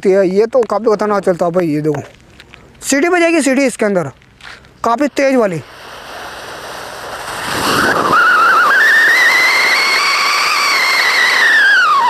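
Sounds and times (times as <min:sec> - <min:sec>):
hiss of spraying sparks: 0:04.8 - 0:12.0
shrill firework whistle: 0:05.7 - 0:12.0.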